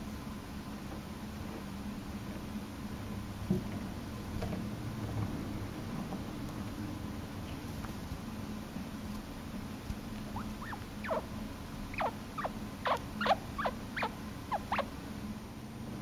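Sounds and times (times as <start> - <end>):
chinchilla squeaks: 10.3 - 11.3, 11.9 - 14.9.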